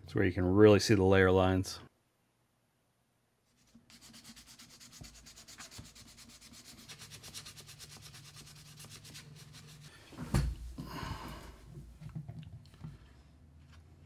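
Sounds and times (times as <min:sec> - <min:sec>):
sandpaper strokes on plastic: 0:03.6 - 0:10.0.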